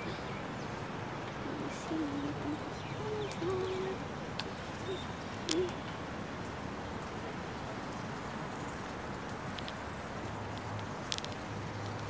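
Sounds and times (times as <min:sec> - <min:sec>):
outdoor background noise: 0:00.0 - 0:12.0
light clicks: 0:10.5 - 0:12.0.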